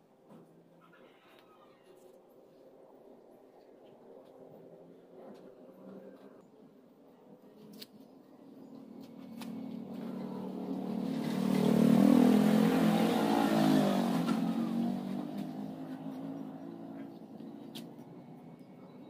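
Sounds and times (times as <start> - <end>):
motor vehicle driving past: 8.8 - 19.0.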